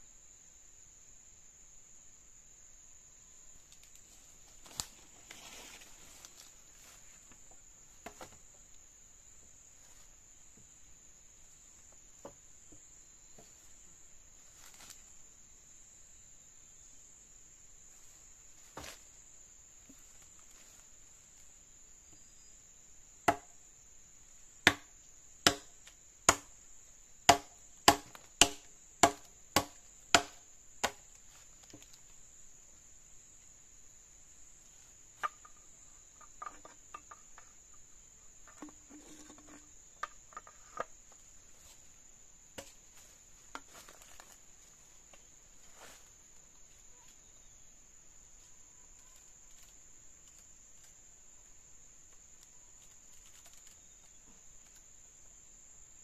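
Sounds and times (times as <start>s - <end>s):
insects droning: 0.0s - 56.0s
sharp chopping strikes: 25.5s - 25.7s, 27.3s - 31.0s.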